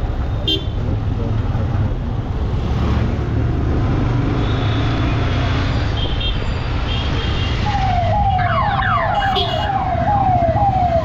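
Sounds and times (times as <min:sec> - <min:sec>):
street traffic: 0:00.0 - 0:11.0
siren wailing: 0:07.6 - 0:11.0.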